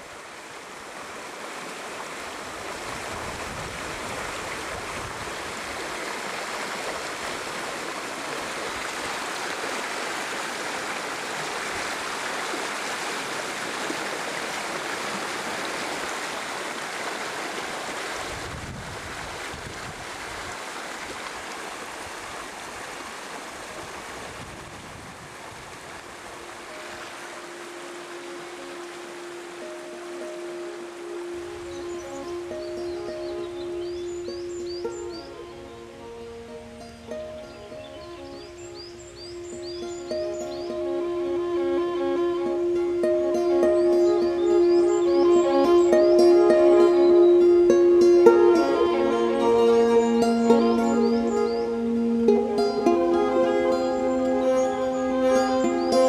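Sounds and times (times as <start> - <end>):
stream rushing over rocks: 0.0 - 56.0
soft music tones: 26.4 - 56.0.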